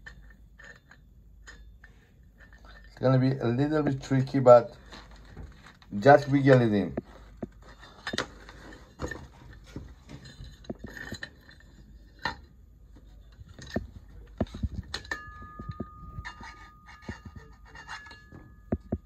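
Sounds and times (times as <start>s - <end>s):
motor and bracket rattling: 4.8s - 19.0s
thin steady tone: 13.1s - 19.0s.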